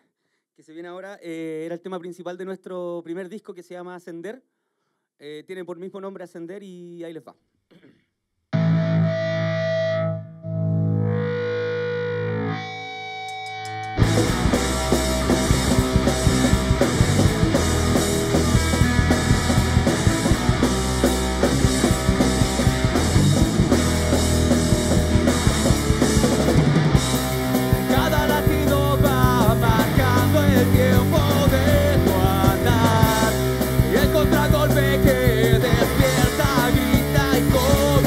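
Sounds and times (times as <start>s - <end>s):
electric guitar with effects: 8.5s - 38.0s
rock band playing: 8.6s - 38.0s.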